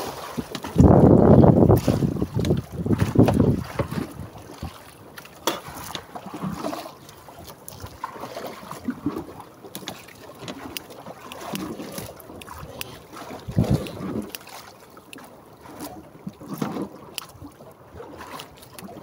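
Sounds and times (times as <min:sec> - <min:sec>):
water slapping against boat hull: 0:00.0 - 0:19.0.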